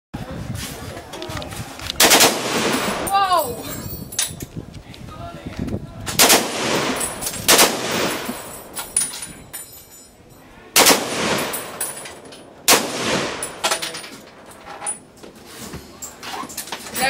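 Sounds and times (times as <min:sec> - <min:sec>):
machine gun firing: 0:02.0 - 0:03.1, 0:06.2 - 0:08.5, 0:10.8 - 0:11.8, 0:12.7 - 0:13.7.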